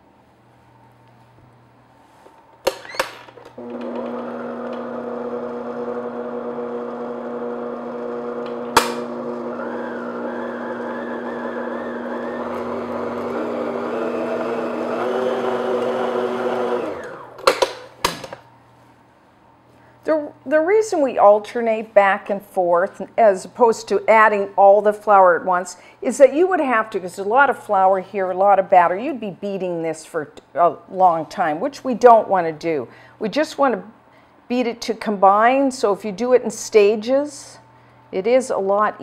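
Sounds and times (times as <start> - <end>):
stand mixer motor humming: 3.6 - 17.4.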